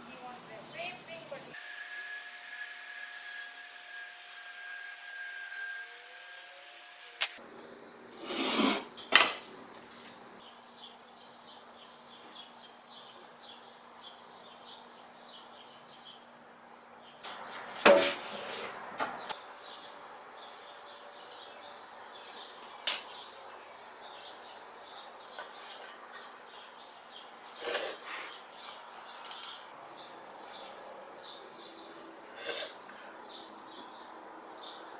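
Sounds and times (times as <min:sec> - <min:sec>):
sharp click: 0:07.2 - 0:07.4
faint birds chirping: 0:09.4 - 0:17.8, 0:19.1 - 0:34.9.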